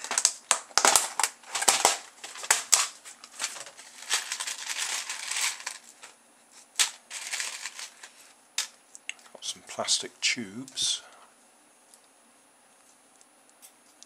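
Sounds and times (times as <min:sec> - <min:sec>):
small parts clattering in plastic tub: 0:00.0 - 0:06.2, 0:06.8 - 0:08.7.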